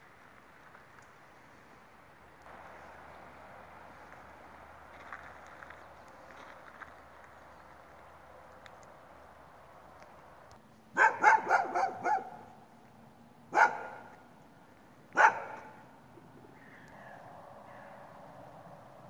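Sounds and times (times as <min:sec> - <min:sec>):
dog barking: 0:11.0 - 0:12.5, 0:13.5 - 0:14.1, 0:15.2 - 0:15.8.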